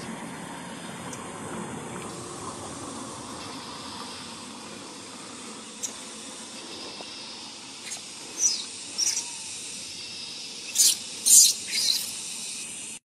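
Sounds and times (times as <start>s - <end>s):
steady hiss: 0.0s - 13.0s
baby monkey squealing: 7.8s - 9.4s, 10.7s - 12.2s.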